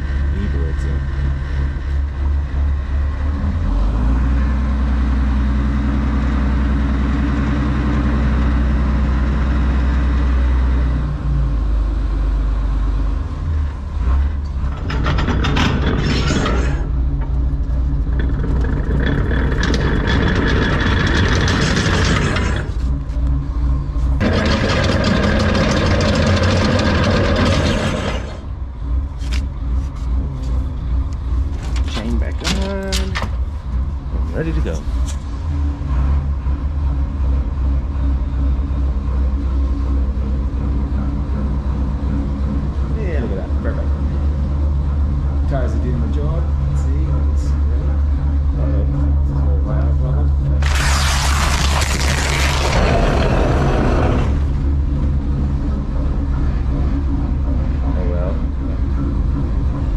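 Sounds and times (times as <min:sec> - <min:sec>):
boat diesel engine running: 0:00.0 - 0:16.0, 0:16.7 - 0:59.9
rushing noise: 0:50.6 - 0:57.8.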